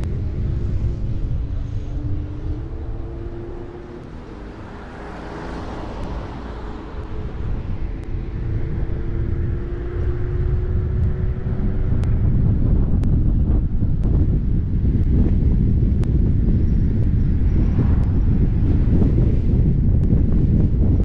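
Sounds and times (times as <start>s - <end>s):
car engine hum: 0.0s - 21.0s
road and wind noise: 0.0s - 21.0s.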